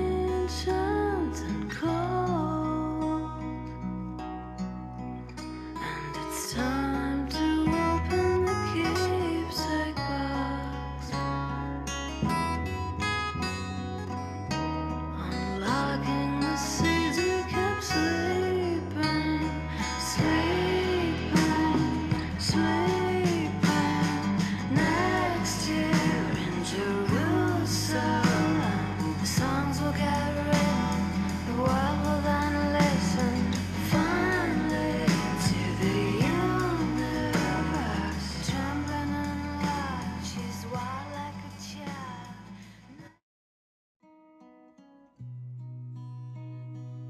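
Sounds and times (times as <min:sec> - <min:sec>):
person singing: 0:00.0 - 0:03.6, 0:05.7 - 0:11.2, 0:15.1 - 0:42.9
bass line: 0:00.0 - 0:42.9
acoustic guitar: 0:00.0 - 0:43.2, 0:44.0 - 0:47.0.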